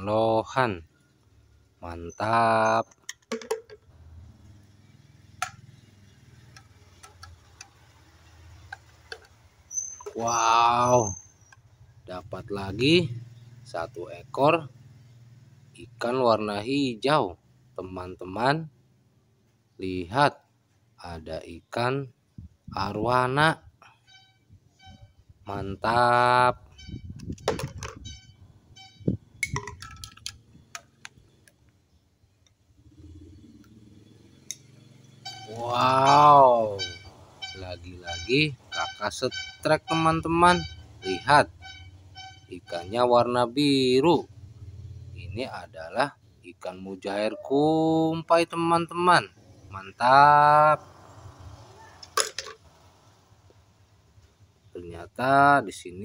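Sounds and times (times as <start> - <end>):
plastic toys clicking and knocking: 2.8 - 3.9, 6.4 - 7.9, 27.2 - 28.0, 29.4 - 31.1.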